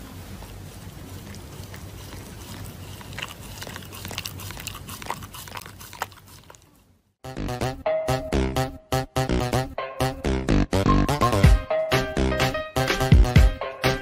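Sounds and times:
dog chewing paper mask: 0:00.0 - 0:06.8.

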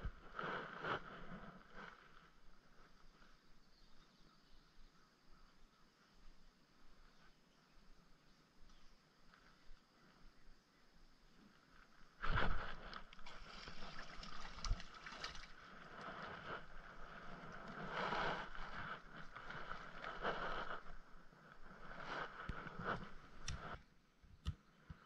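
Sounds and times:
rustling: 0:11.5 - 0:23.8
water splashing: 0:12.2 - 0:16.4.

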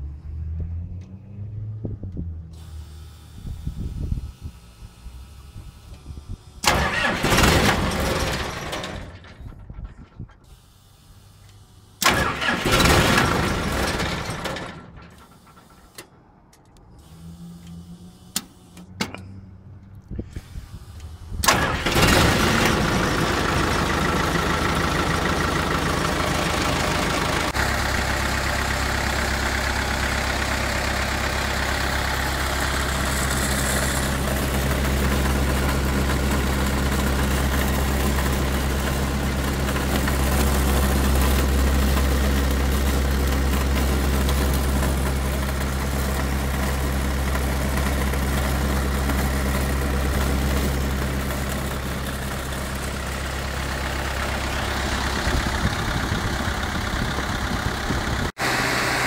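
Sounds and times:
diesel engine cranking: 0:05.0 - 0:10.8, 0:11.4 - 0:59.0
diesel engine idling: 0:05.0 - 0:16.4, 0:19.7 - 0:59.0.

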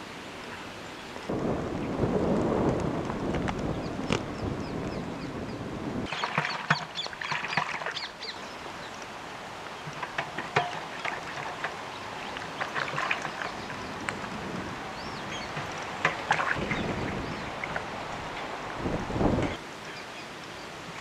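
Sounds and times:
water splashing in a steel basin: 0:06.0 - 0:18.7
water dripping: 0:06.0 - 0:21.0.

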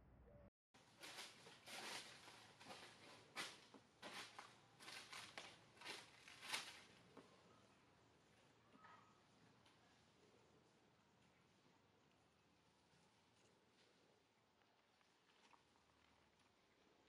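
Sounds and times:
leaves and branches rustling: 0:00.8 - 0:08.5.

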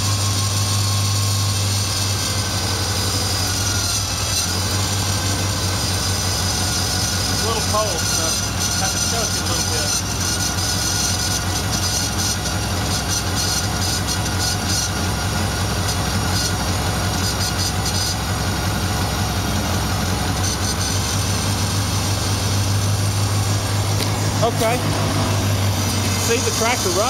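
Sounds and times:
engine idling: 0:00.0 - 0:27.0.

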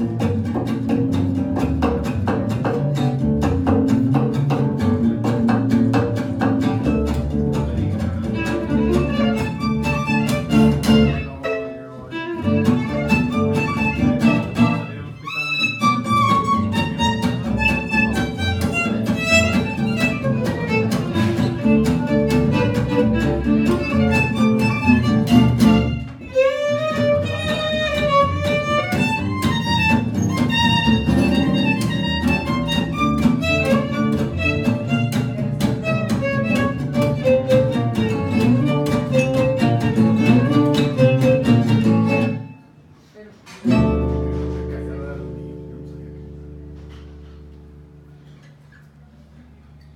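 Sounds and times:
plucked double bass: 0:00.0 - 0:42.6, 0:43.6 - 0:49.9
strummed acoustic guitar: 0:00.0 - 0:42.8, 0:43.6 - 0:48.7
bowed violin melody: 0:08.1 - 0:42.6.

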